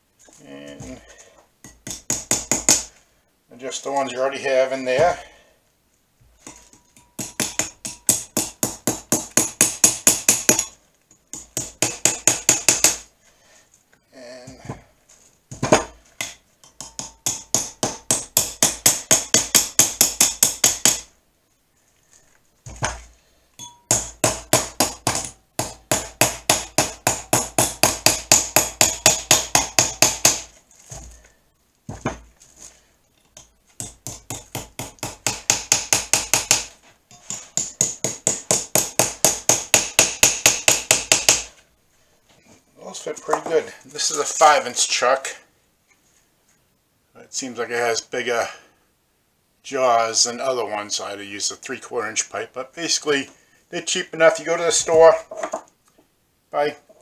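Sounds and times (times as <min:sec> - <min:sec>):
hammer tapping on metal: 0:06.4 - 0:13.0, 0:16.2 - 0:21.1, 0:33.4 - 0:41.5.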